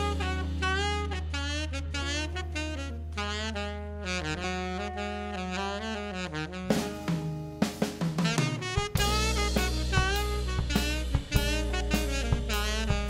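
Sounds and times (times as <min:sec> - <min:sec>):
low bass note: 0:00.0 - 0:03.5
saxophone melody: 0:00.0 - 0:13.0.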